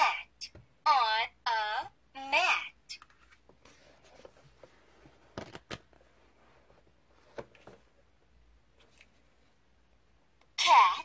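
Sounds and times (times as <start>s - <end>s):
paper pages rustling: 3.0s - 6.2s.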